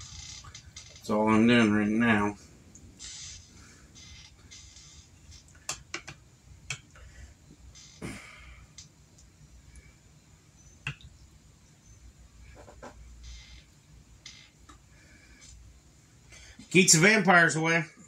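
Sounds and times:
sharp clicks and taps: 5.5s - 7.0s.

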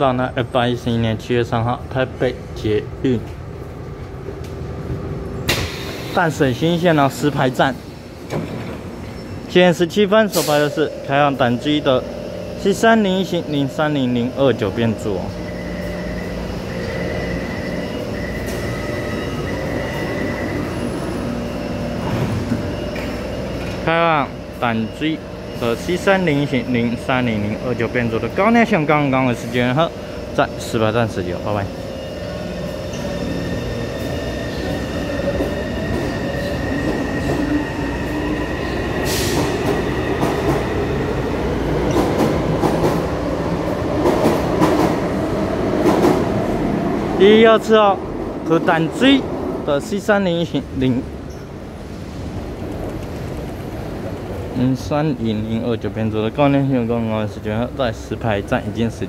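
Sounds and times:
train hum and rumble: 0.0s - 59.0s
faint high whine: 9.1s - 33.8s
train wheels rolling: 31.7s - 47.2s, 51.3s - 54.6s.

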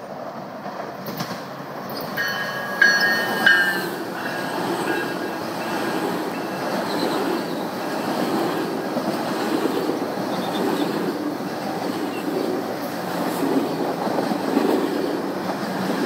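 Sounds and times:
train wheels rumbling on rails: 0.0s - 16.0s
high wheel squeals: 1.9s - 8.4s.

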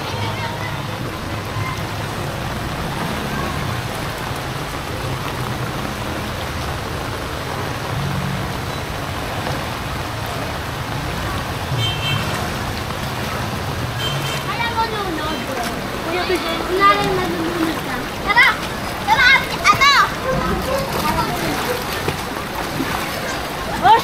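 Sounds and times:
heavy rain pouring: 0.0s - 24.0s
traffic hum: 0.0s - 24.0s.

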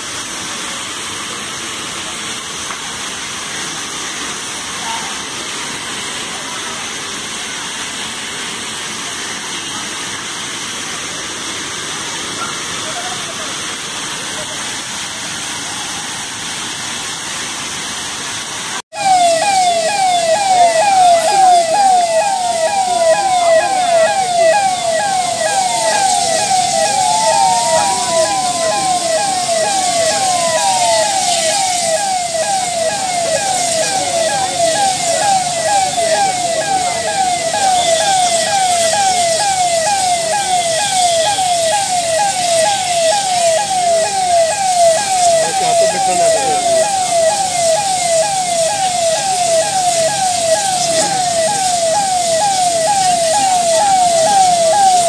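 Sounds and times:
siren wailing: 18.9s - 55.0s
siren yelping: 18.9s - 55.0s.

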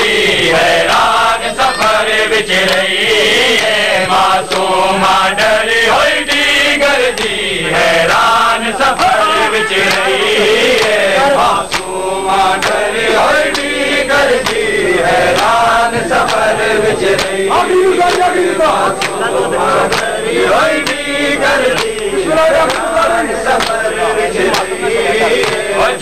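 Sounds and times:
men chanting a lament: 0.0s - 26.0s
hands slapping chests: 2.6s - 2.9s, 3.6s - 4.7s, 6.3s - 7.4s, 8.9s - 12.0s, 12.6s - 12.9s, 13.5s - 13.8s, 14.4s - 17.4s, 18.0s - 20.2s, 21.6s - 23.9s, 24.5s - 25.9s.

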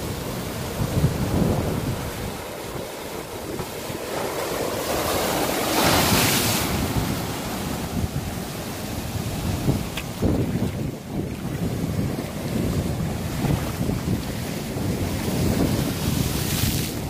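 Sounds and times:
waves breaking on rocks: 0.0s - 17.0s
wind rumble on microphone: 0.0s - 17.0s
wave crash with spray hiss: 4.2s - 7.6s.

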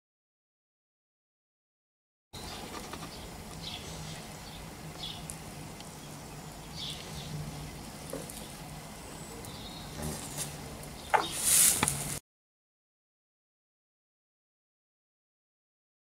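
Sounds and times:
low steady hum: 2.4s - 12.2s.

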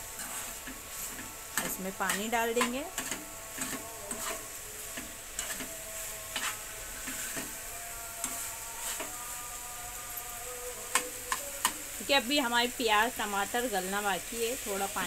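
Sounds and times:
onions sizzling in a pan: 0.0s - 15.0s
metal spoon scraping a pan: 0.1s - 9.4s.

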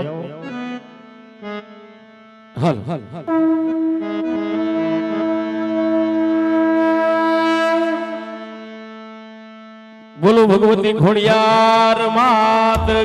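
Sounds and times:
harmonium drone: 0.0s - 13.0s
conch shell blown: 3.3s - 8.6s.

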